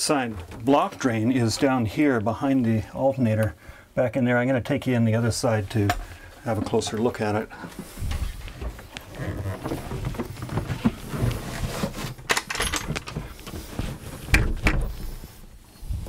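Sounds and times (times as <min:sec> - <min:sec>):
handling knocks and rustling: 0:05.7 - 0:16.0.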